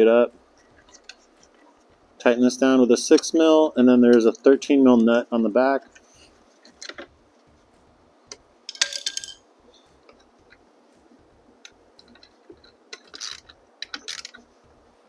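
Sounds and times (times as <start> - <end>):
ringing metallic clatter: 8.7 - 10.0
tools and metal hardware clinking: 8.7 - 10.6, 12.0 - 14.5.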